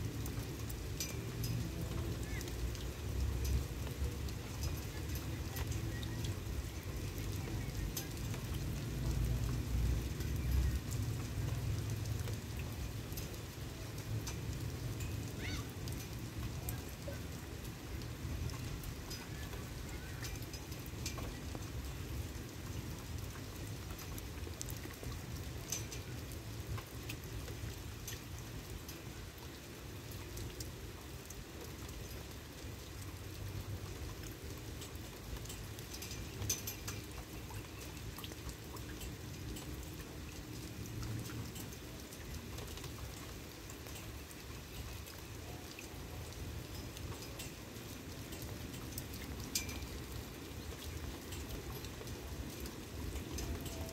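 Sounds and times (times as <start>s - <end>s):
light rain falling: 0.0s - 53.9s.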